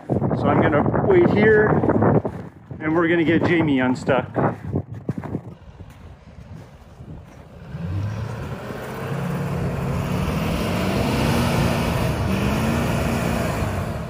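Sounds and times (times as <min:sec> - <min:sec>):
engine revving hard: 0:07.2 - 0:14.0.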